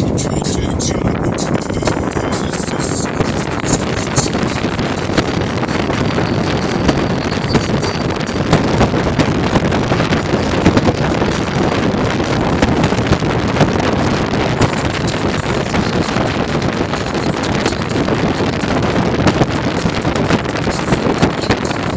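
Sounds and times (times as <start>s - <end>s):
car road noise: 0.0s - 21.9s
wind buffeting microphone: 0.0s - 21.9s.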